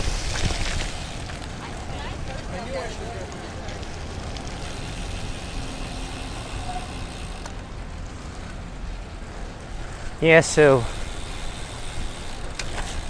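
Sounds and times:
tyres hissing on wet road: 4.2 - 7.4.

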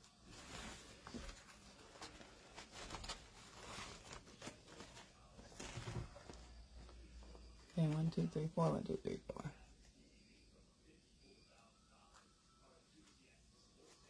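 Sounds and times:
ribbon and fabric rustling: 0.0 - 9.5.

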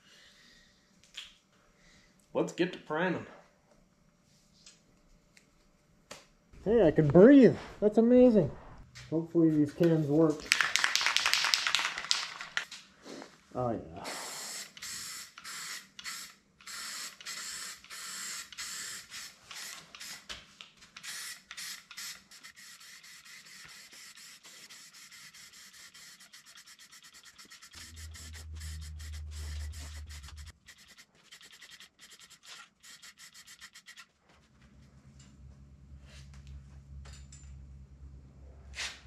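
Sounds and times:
aerosol spray hissing: 14.0 - 20.2, 21.0 - 34.0
low hum: 27.6 - 30.7, 34.4 - 38.8.

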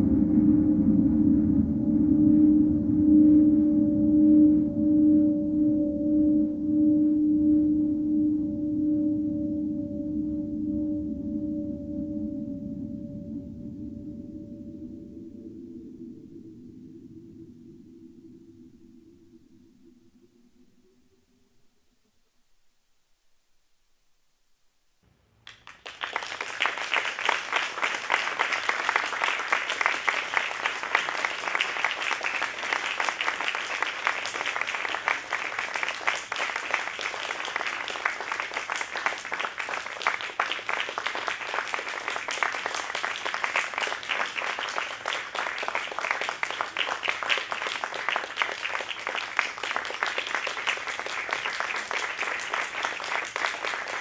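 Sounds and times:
audience applauding: 25.5 - 54.0.

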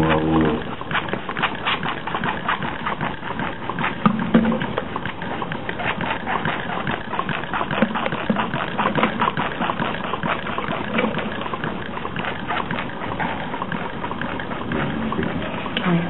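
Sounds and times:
stirling engine clicking and rattling: 0.0 - 16.0.

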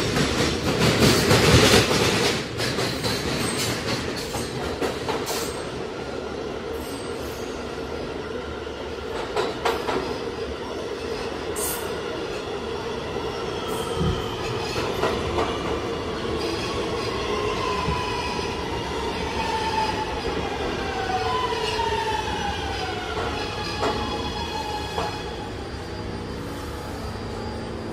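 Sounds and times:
subway train motor whine: 15.5 - 27.9.

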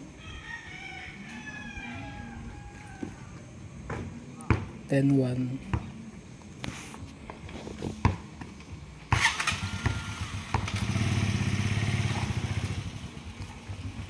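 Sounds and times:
ball thumping on dirt: 3.9 - 4.8, 7.3 - 10.8
motorcycle engine: 9.1 - 14.0.

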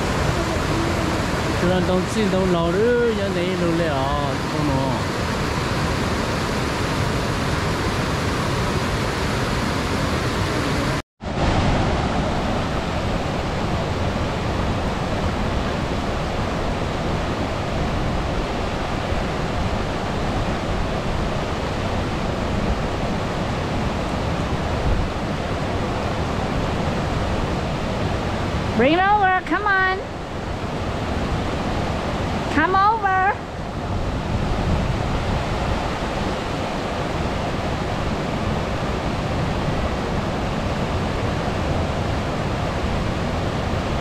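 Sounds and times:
fast-flowing stream rushing: 0.0 - 44.0.

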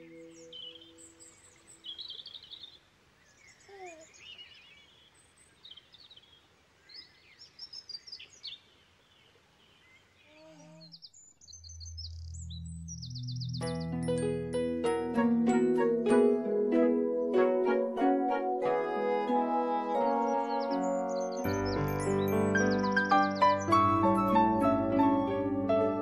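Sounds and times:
small birds chirping and trilling: 0.0 - 14.3, 19.9 - 24.2
music: 12.4 - 26.0.

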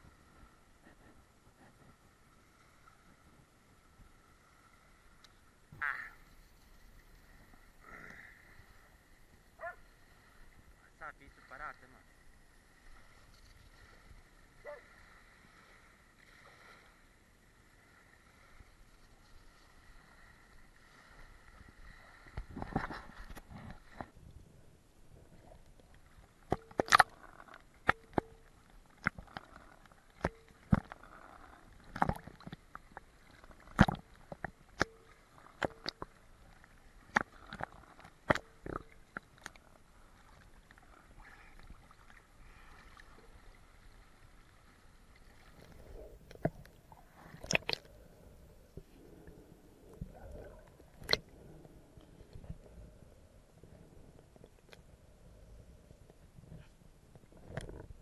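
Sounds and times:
low water hiss: 0.0 - 58.0
underwater clicks and knocks: 26.5 - 31.1, 31.8 - 36.2, 37.1 - 39.6, 45.6 - 47.9, 50.1 - 51.3, 57.4 - 58.0.

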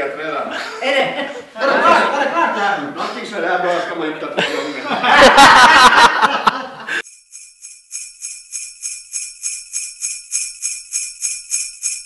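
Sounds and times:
voices and laughter: 0.5 - 3.0, 4.2 - 7.0
jingle bells shaken: 7.0 - 12.0.

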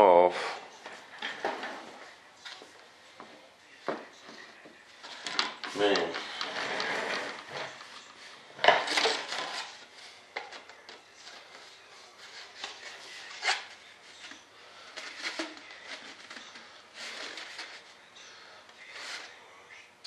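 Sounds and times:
tubes scraping on workbench: 5.1 - 7.8.

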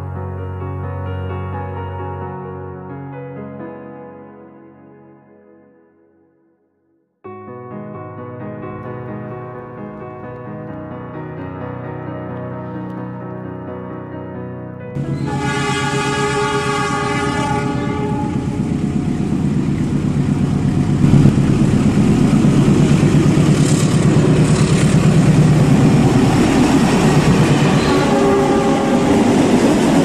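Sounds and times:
locomotive horn: 15.0 - 18.9, 26.8 - 29.5
train rumble and wheel clatter: 15.0 - 30.0.

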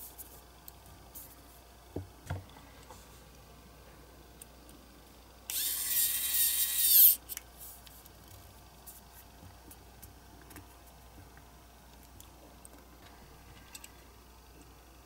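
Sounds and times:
electric screwdriver motor whine: 5.5 - 7.2.

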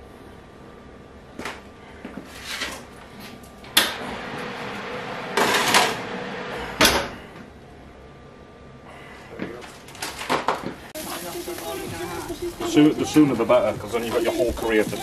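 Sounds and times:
oven hissing: 3.7 - 7.4, 11.0 - 15.0
metal tray scraping on rack: 4.0 - 6.7.

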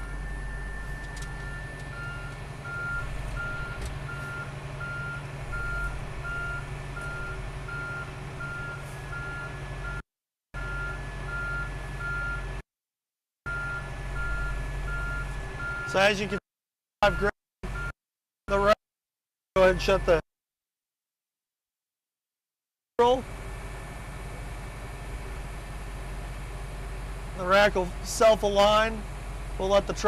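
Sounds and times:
diesel engine running: 0.0 - 10.0, 13.5 - 16.4, 23.0 - 30.0
reversing beeper: 0.0 - 10.0, 13.5 - 16.0, 17.0 - 17.9.

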